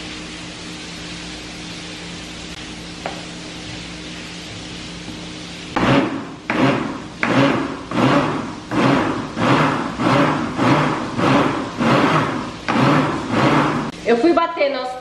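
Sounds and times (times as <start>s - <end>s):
blender pulsing: 5.7s - 14.0s.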